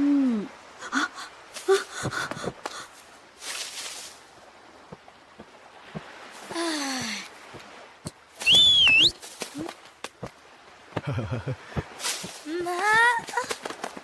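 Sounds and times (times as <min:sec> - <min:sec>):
shrill cartoon whistle: 0:08.4 - 0:09.1.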